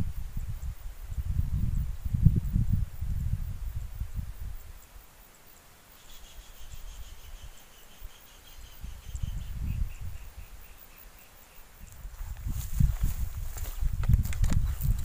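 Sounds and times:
wind rumbling on microphone: 0.0 - 5.0, 8.5 - 10.8, 11.7 - 15.0.

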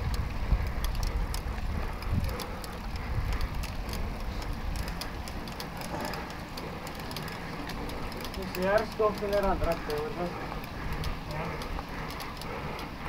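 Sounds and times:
bicycle tyres rolling on asphalt: 0.0 - 13.0
faint clicks: 0.0 - 13.0
wind buffeting microphone: 0.0 - 13.0.

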